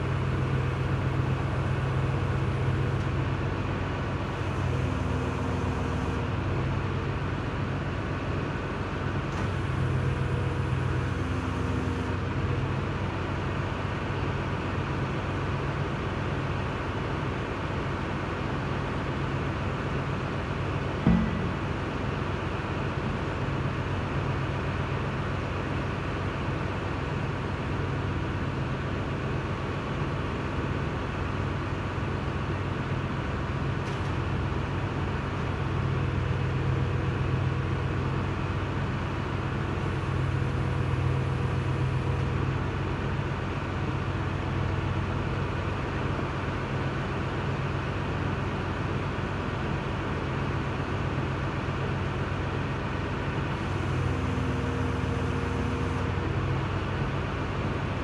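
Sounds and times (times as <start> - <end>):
machine droning low: 20.8 - 24.0, 53.5 - 57.8.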